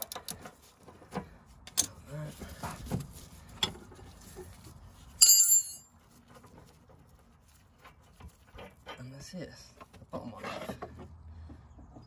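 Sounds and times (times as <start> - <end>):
metallic clang: 5.2 - 5.9.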